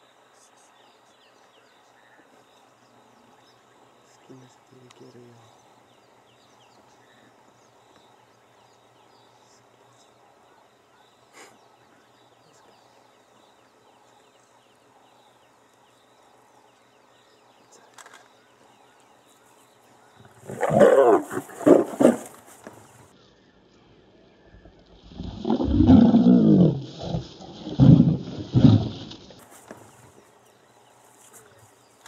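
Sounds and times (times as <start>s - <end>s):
lions snarling and growling: 20.2s - 22.8s, 24.7s - 30.0s.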